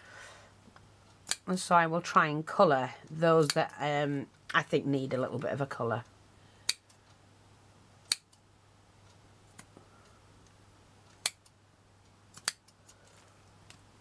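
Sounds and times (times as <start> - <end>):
scissors snipping thread: 1.2 - 1.4, 3.4 - 3.7, 8.1 - 8.4, 12.3 - 13.0.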